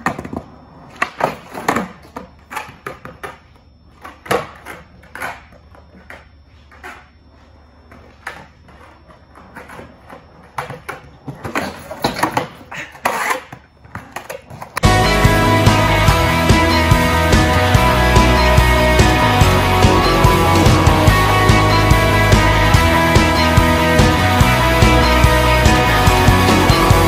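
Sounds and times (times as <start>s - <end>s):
skateboard clacks and landings: 0.0s - 14.8s
skateboard wheels rolling on concrete: 0.0s - 27.0s.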